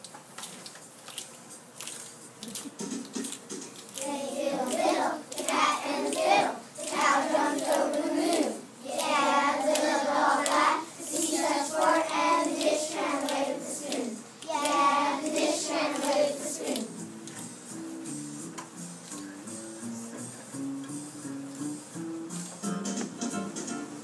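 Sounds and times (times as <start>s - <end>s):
hand claps: 1.8s - 17.5s
children singing: 4.0s - 16.9s.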